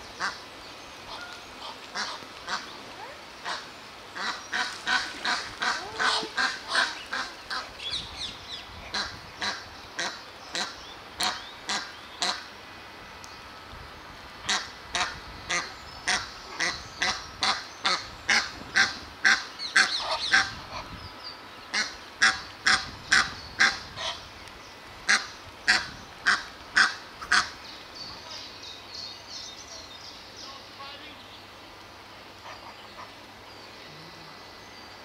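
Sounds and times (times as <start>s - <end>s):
waterbird honking calls: 1.1s - 2.7s, 3.4s - 8.0s.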